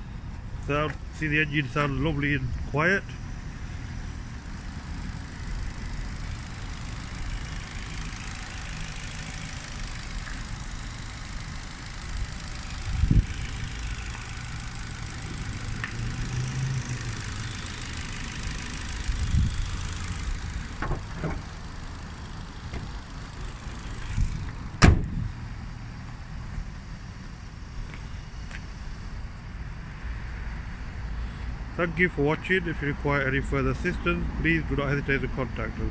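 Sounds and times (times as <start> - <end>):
car engine idling: 0.0 - 30.0
car bonnet slamming shut: 20.8 - 21.5, 24.8 - 25.3.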